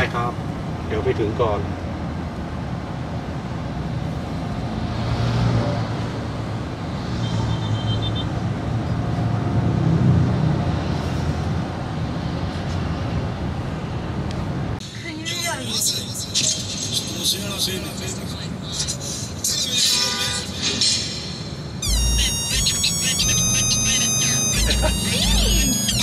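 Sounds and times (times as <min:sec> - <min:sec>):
car road and engine noise: 0:00.0 - 0:26.0
high beeping: 0:21.8 - 0:26.0.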